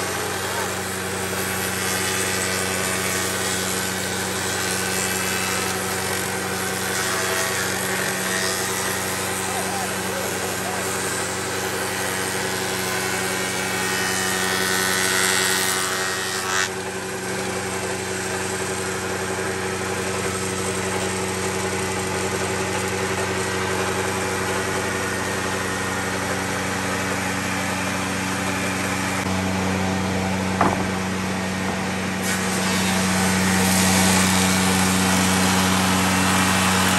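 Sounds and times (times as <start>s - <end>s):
board being cut: 0.0s - 36.9s
spindle moulder motor hum: 0.0s - 36.9s.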